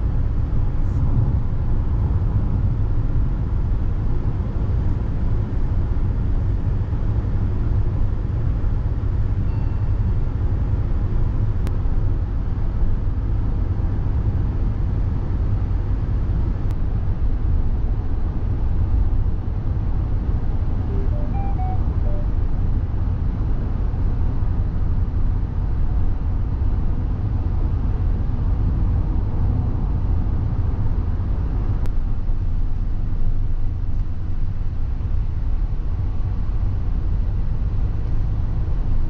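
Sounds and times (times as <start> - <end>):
diesel engine rumble: 0.0 - 39.0.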